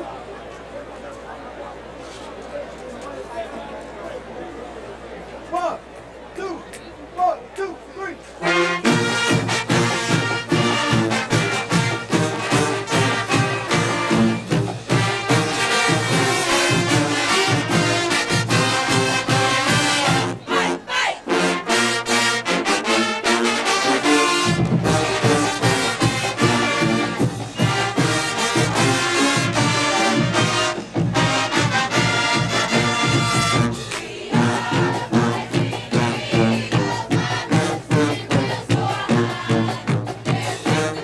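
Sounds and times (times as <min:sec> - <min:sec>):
marching band brass playing: 0:08.0 - 0:41.0
drums with steady beat: 0:08.8 - 0:20.4, 0:24.0 - 0:41.0.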